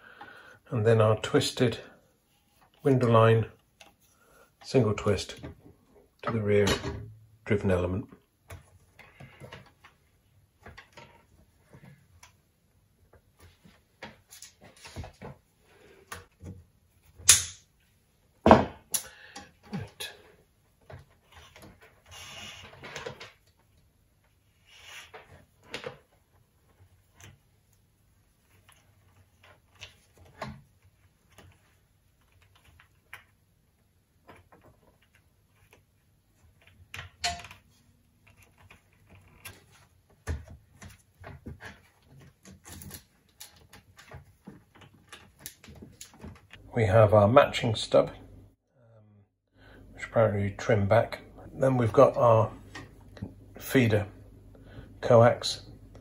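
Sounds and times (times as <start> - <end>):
cable rustling and clicking: 28.4 - 46.6.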